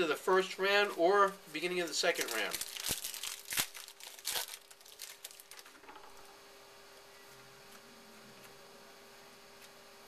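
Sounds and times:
faint steady hum: 0.0 - 10.0
trading cards rustling and clicking: 2.0 - 5.8.

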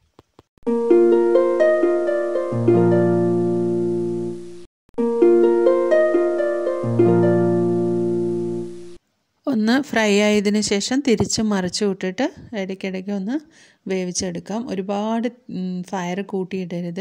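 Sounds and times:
harp-like plucked strings: 0.7 - 9.0.

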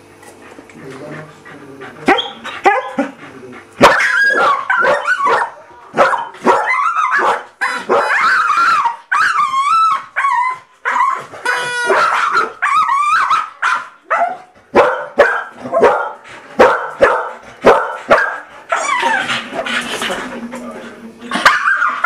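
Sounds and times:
dogs yelping and whining: 2.0 - 14.6, 17.7 - 19.7, 21.3 - 22.0
dogs barking: 2.0 - 19.5, 21.3 - 22.0.

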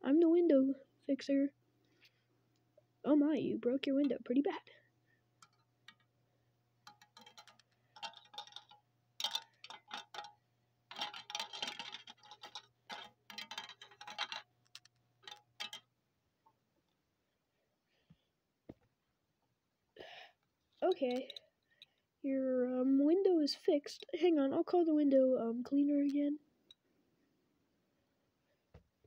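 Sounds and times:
plastic toy knocking and scraping: 6.9 - 15.9.

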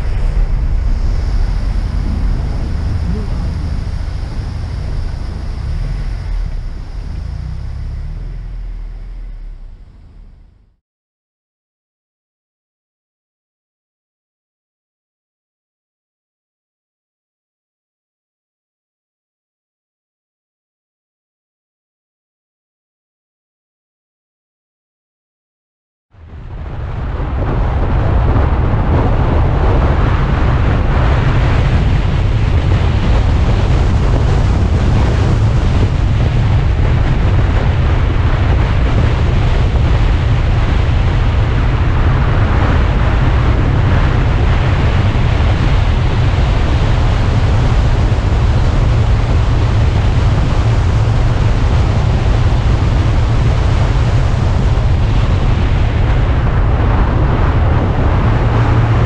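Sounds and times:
wind buffeting microphone: 0.0 - 10.5, 26.2 - 59.0
car engine and tyres droning: 0.0 - 10.8, 27.6 - 55.6, 56.6 - 59.0.

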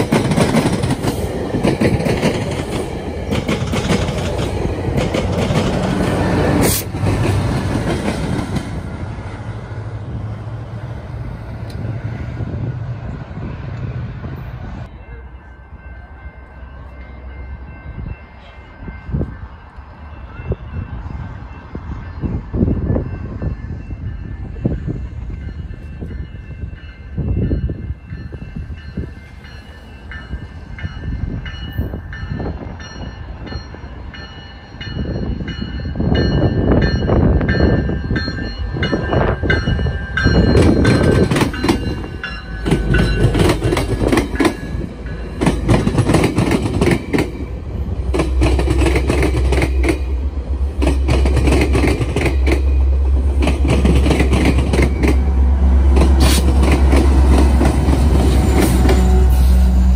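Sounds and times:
train wheels clacking on rails: 0.0 - 9.2, 24.4 - 59.9
diesel locomotive engine rumble: 0.0 - 59.9
train horn: 55.3 - 59.9.

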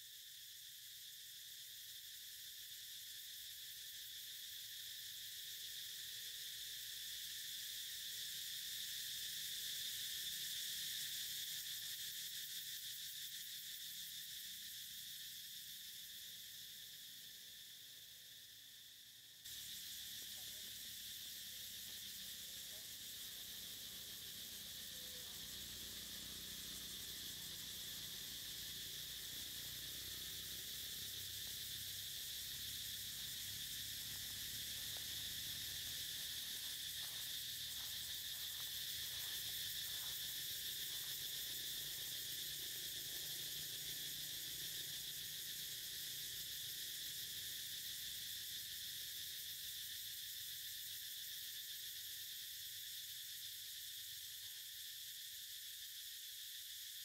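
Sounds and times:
crickets droning: 0.0 - 57.0.

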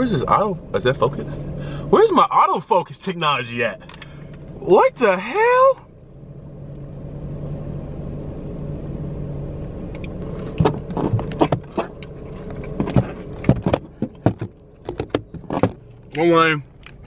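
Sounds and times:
car idling hum: 0.0 - 17.0
sharp clicks and knocks of handling: 9.9 - 16.2.

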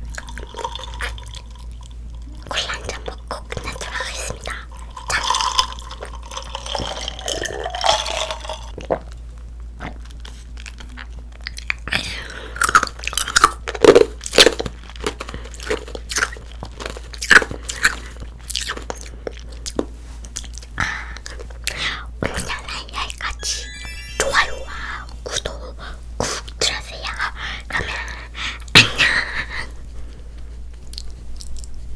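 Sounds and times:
person sipping from a glass: 0.1 - 8.7
wet chewing smacks: 9.8 - 12.0, 30.8 - 31.8.

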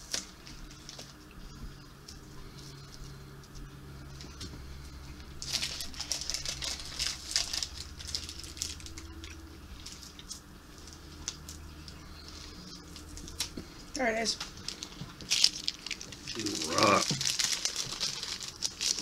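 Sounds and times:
faint low hum: 0.0 - 19.0
wrapper crinkling and rustling: 5.2 - 19.0.

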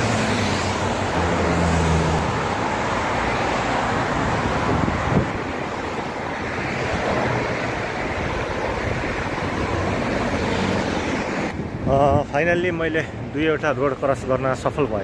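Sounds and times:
road traffic roar: 0.0 - 15.0
wind on microphone: 4.2 - 12.3.

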